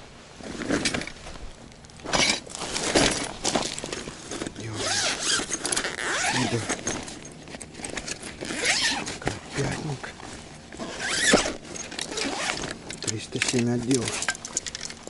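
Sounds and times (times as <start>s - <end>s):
zip pulled open rasping: 4.7s - 7.1s, 7.9s - 9.4s, 10.8s - 12.8s.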